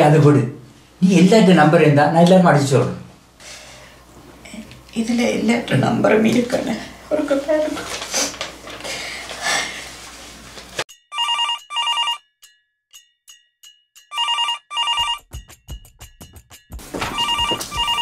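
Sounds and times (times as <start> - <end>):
telephone double ring: 11.2 - 12.2, 14.1 - 15.2, 17.1 - 18.0.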